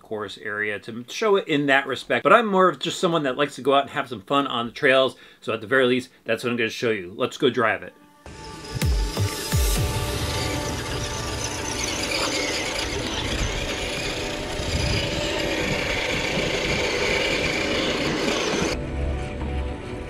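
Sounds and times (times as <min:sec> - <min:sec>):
electric motor whining: 0:08.3 - 0:18.8
tyres on dirt: 0:08.7 - 0:18.8.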